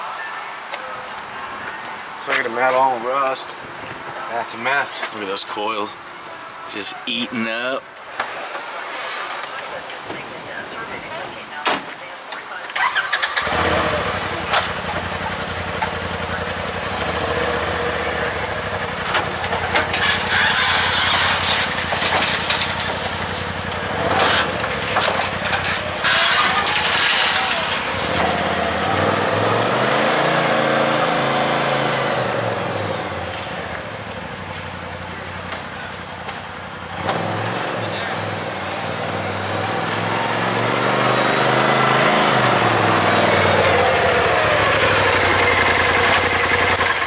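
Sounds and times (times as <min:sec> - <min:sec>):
engine revving: 0:12.8 - 0:33.9, 0:36.9 - 0:47.0
engine starting and running: 0:12.8 - 0:36.4, 0:40.5 - 0:47.0.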